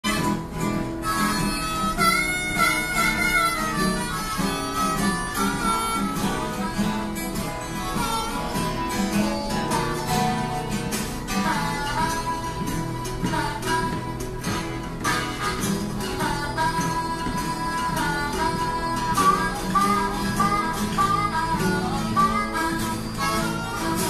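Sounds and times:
picked guitar rhythm: 0.0s - 24.0s
lead instrument bending long notes: 0.1s - 24.0s.

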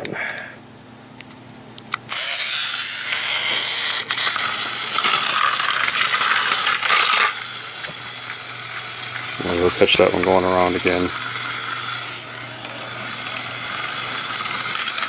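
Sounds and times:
toy car motor whirring: 2.0s - 15.0s.

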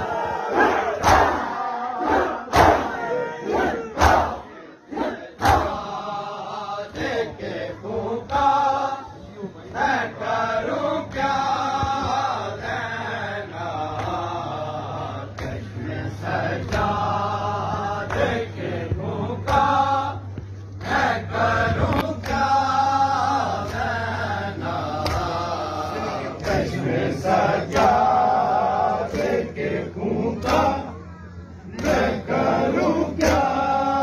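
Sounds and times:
men chanting a lament: 0.0s - 34.0s
hands slapping chests: 1.0s - 1.4s, 25.0s - 25.4s.

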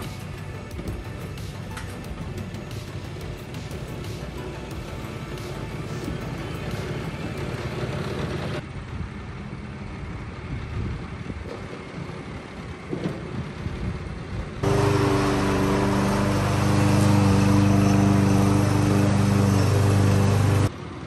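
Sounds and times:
reel mower engine running quietly: 0.0s - 8.6s, 14.6s - 20.7s
loud rotary push mower: 3.0s - 8.6s, 14.6s - 20.7s.

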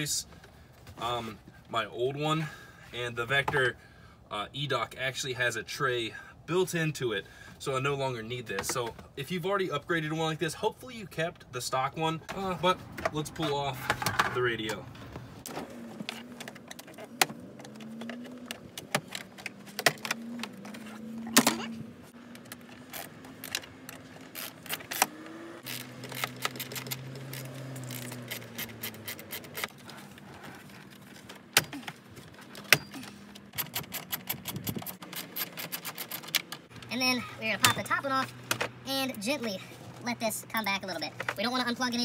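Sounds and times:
plastic trim and tools rattling: 15.5s - 36.8s.

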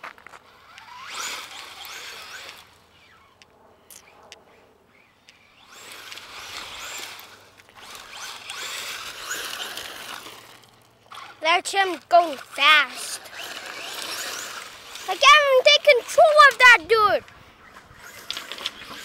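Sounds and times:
electric motor whining: 0.4s - 4.1s, 4.9s - 19.0s
tyres spraying gravel: 5.7s - 17.0s.

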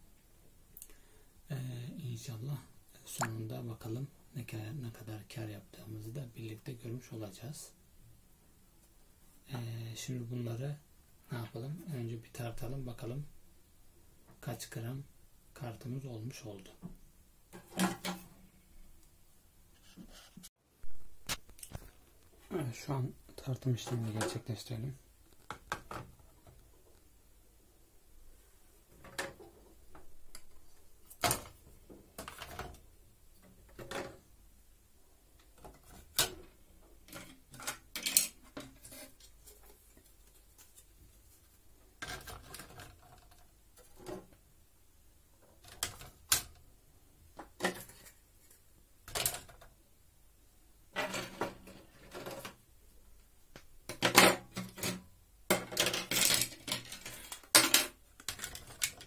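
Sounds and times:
circuit boards clattering on scale: 53.9s - 59.0s.

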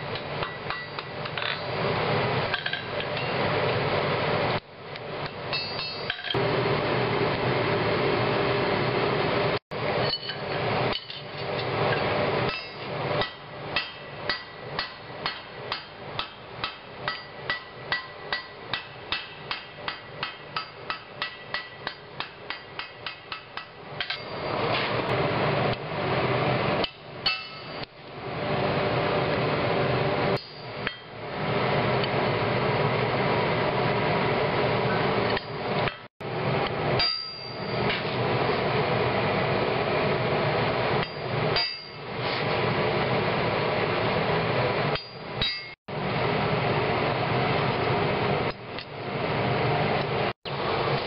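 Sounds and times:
hammer ringing on steel anvil: 5.5s - 6.4s, 10.0s - 11.2s, 12.5s - 24.6s, 26.8s - 27.9s, 37.0s - 37.9s, 41.0s - 42.0s, 45.0s - 45.8s.

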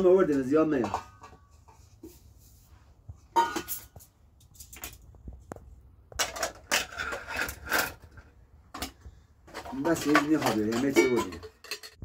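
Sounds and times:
metal skewers clinking: 9.6s - 12.0s.

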